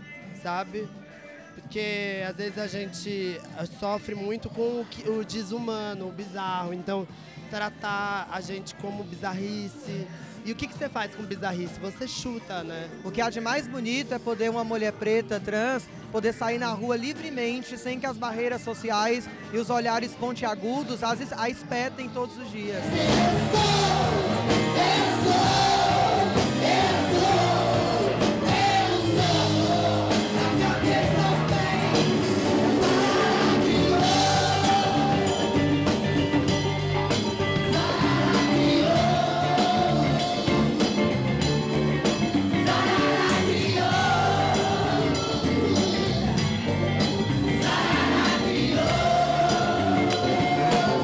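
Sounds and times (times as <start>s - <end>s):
band playing live: 22.6s - 51.0s
women singing long held lines: 22.8s - 35.5s, 37.6s - 40.4s, 42.6s - 45.3s, 47.6s - 51.0s.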